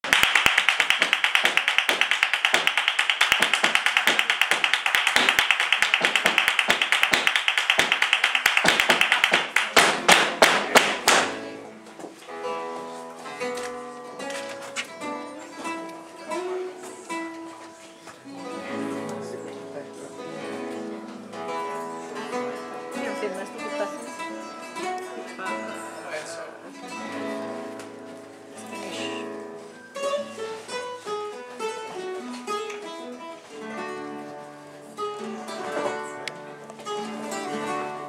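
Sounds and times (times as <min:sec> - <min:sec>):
flamenco percussion taps: 0:00.0 - 0:12.2
acoustic guitar picking notes: 0:09.6 - 0:38.0.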